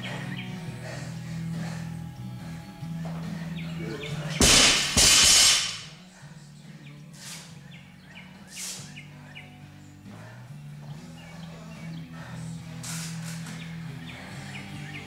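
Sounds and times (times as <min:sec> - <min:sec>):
barbell crashing on floor: 0:04.4 - 0:06.0.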